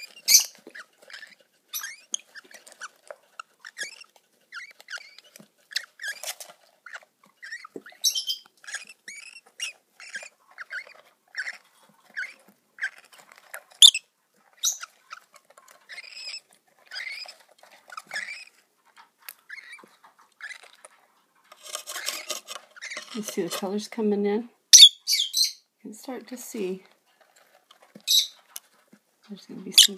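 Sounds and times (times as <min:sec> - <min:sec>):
bird chicks chirping: 0:00.0 - 0:20.8, 0:24.8 - 0:25.7, 0:27.9 - 0:28.6, 0:29.5 - 0:29.9.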